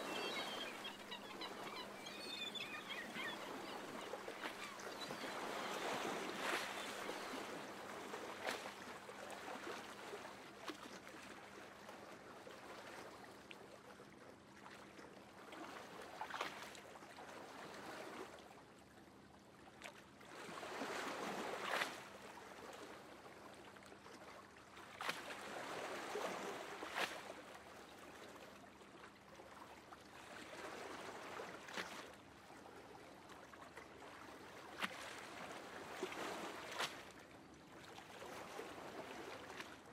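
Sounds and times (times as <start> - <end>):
water splashes: 15.5 - 18.4, 29.4 - 39.9.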